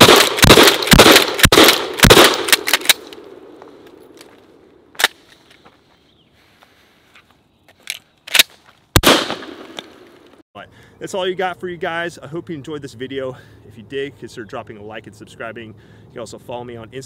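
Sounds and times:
shotgun shots with echo: 0.0 - 2.7, 9.0 - 9.8
shotgun pump action: 0.0 - 3.2.

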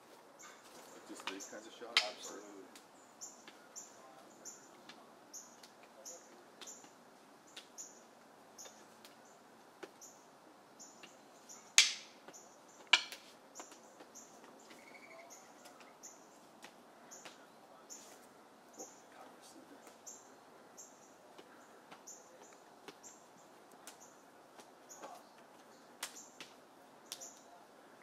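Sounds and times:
bird chirping: 0.3 - 27.6
sticks clacking together: 1.2 - 3.6, 11.7 - 12.2, 12.8 - 13.8.

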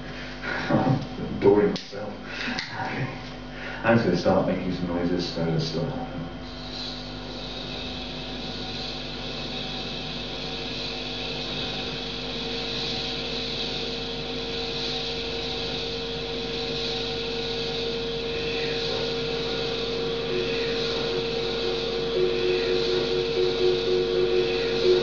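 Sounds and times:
electronic drone: 6.4 - 25.0
hiss: 6.4 - 25.0.

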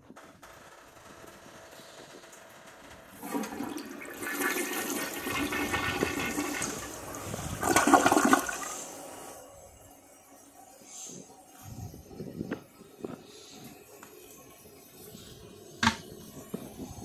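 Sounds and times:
toilet flushing: 3.1 - 9.9.

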